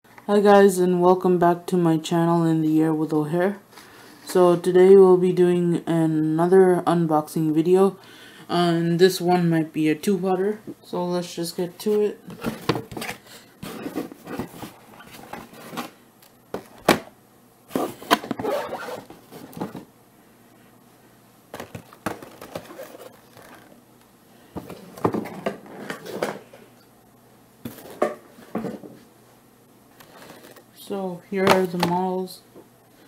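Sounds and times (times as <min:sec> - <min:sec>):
cardboard box scraping: 0:12.4 - 0:15.9.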